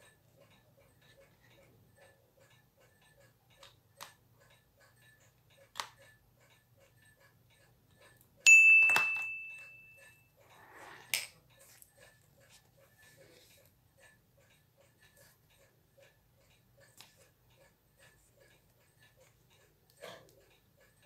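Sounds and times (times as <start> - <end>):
watch ticking: 0.0 - 8.5, 9.3 - 21.0
bright chime: 8.5 - 10.2.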